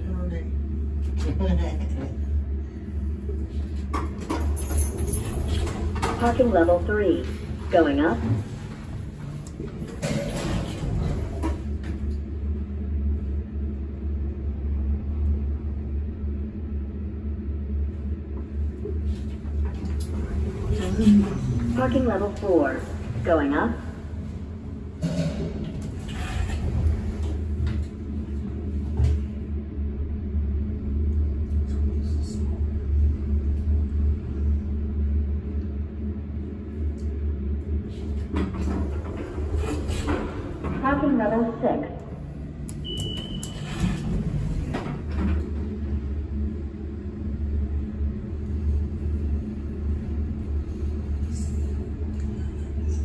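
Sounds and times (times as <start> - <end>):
elevator car rumbling: 0.0 - 53.0
elevator clunks: 3.9 - 12.1, 38.2 - 46.1
elevator clicks: 42.6 - 44.1.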